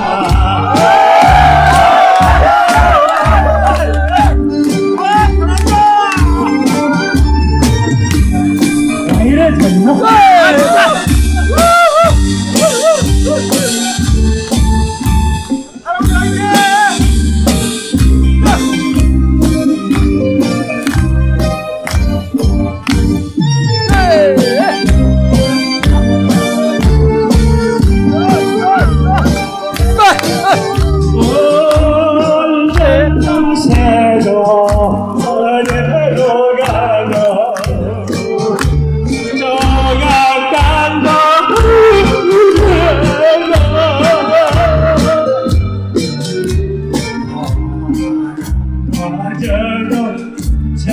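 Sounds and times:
man singing into microphone: 0:00.0 - 0:01.4, 0:31.1 - 0:45.6, 0:48.9 - 0:50.9
karaoke backing track: 0:00.0 - 0:50.9
music with steady beat: 0:00.0 - 0:50.9.

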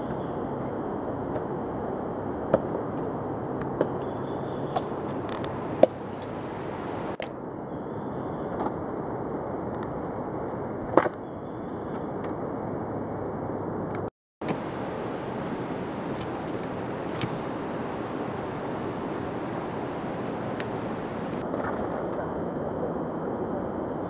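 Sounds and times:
steady rushing noise: 0:04.7 - 0:07.6, 0:12.3 - 0:24.0.

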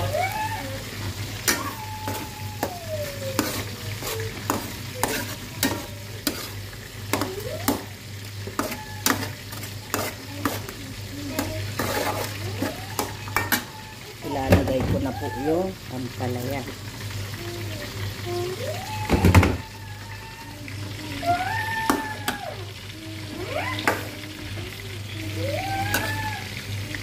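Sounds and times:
food sizzling in pan: 0:00.0 - 0:27.0
spoon scraping pan: 0:01.0 - 0:13.8.

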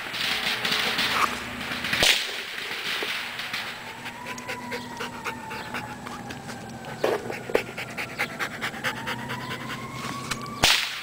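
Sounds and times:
sharp crack: 0:00.0 - 0:04.5, 0:10.3 - 0:11.0
dog panting heavily: 0:03.8 - 0:10.3.

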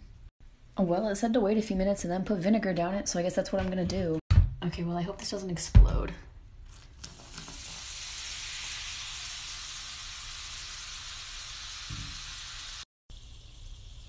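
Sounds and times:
vinegar fizzing on baking soda: 0:07.2 - 0:14.0.

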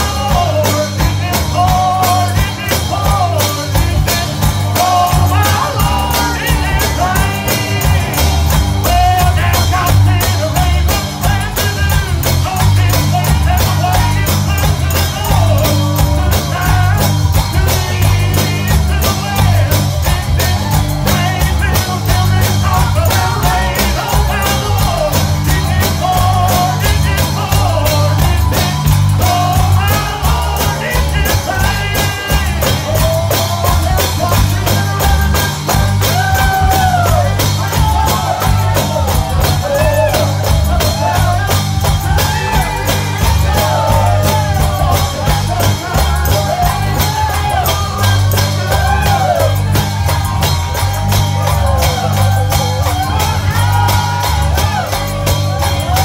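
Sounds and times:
gospel band playing: 0:00.0 - 0:56.0
tambourine: 0:00.0 - 0:56.0.

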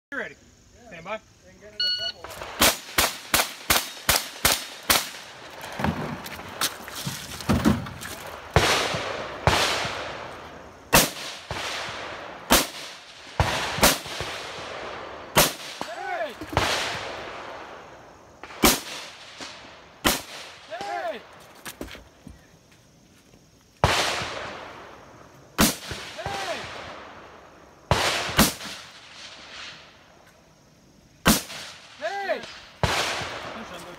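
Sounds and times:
gunshots with long echo: 0:02.2 - 0:05.5, 0:08.4 - 0:20.9, 0:23.8 - 0:30.0, 0:31.2 - 0:33.8.

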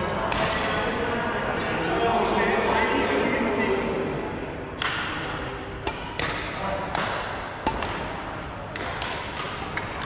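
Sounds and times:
rackets hitting shuttlecock: 0:00.2 - 0:00.9, 0:04.8 - 0:10.0.

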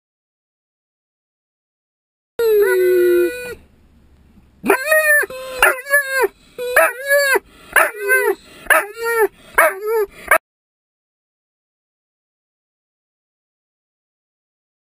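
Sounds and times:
dog yelping whines: 0:04.6 - 0:10.4.

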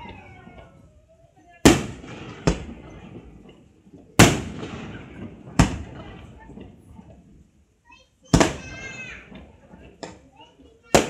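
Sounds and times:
firework shells bursting: 0:01.6 - 0:07.6, 0:08.2 - 0:11.0.

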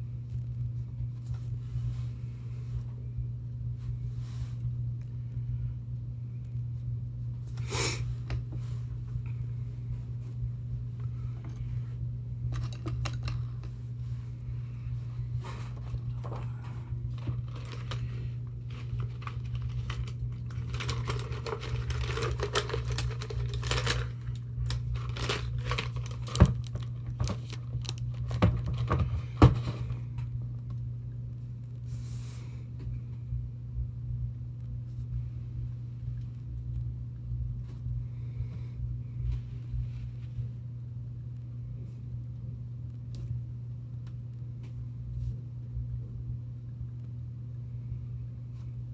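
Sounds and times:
steady low hum: 0:00.0 - 0:48.9
painting supplies clicking and rustling: 0:12.5 - 0:13.8, 0:15.8 - 0:30.3.

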